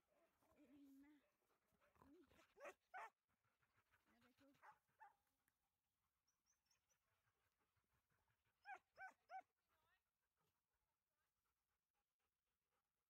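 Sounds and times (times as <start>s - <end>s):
dog barking high-pitched: 2.6s - 3.1s, 8.7s - 9.4s.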